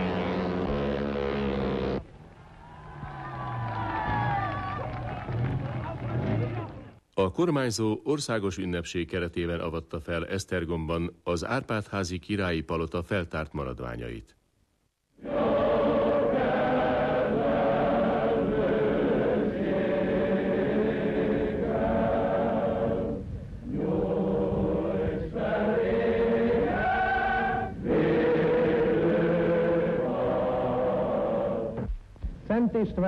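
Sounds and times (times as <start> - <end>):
choir singing held notes: 15.2 - 31.9.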